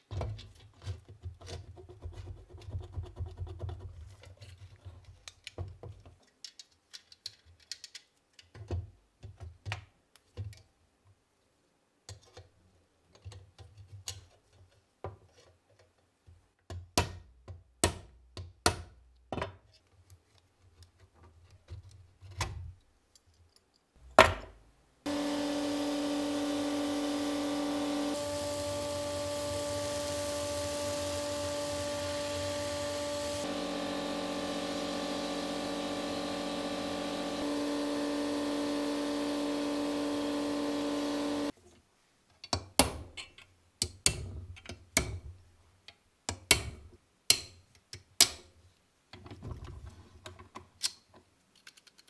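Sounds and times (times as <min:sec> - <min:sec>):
blasting cabinet hissing: 0:25.1 - 0:41.5.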